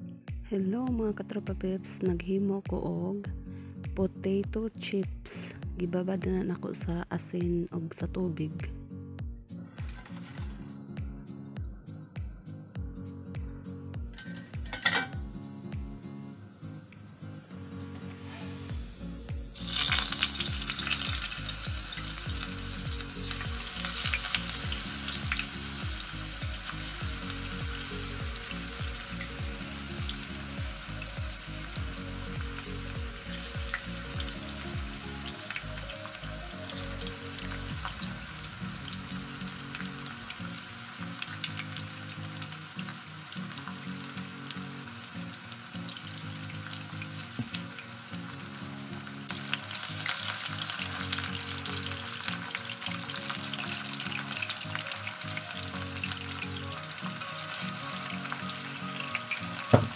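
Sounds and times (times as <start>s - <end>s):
potato slices sizzling in oil: 18.0s - 59.9s.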